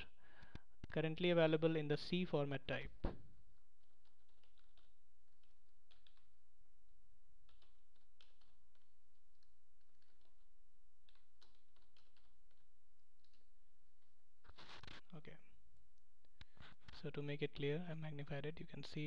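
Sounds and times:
keyboard typing clicks: 0:04.0 - 0:06.3, 0:07.4 - 0:12.6.

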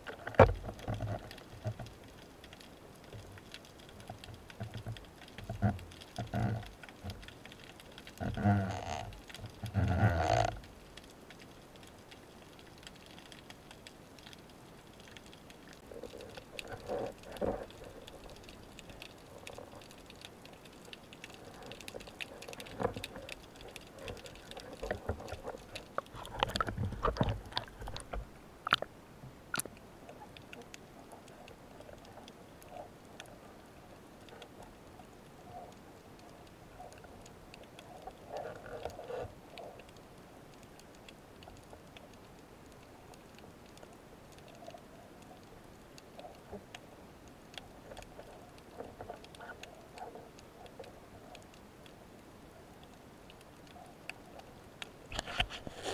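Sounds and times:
underwater clicks and knocks: 0:00.0 - 0:10.9, 0:15.0 - 0:28.9.

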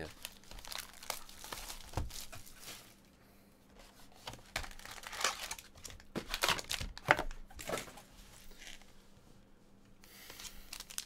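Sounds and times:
foil packs crinkling: 0:00.0 - 0:03.0, 0:04.3 - 0:07.9, 0:10.3 - 0:11.0.

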